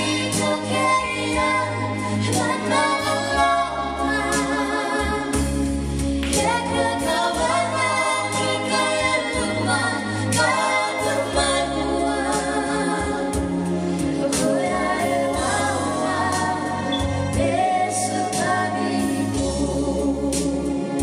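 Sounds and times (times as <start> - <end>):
voices singing in harmony: 0.0 - 21.0.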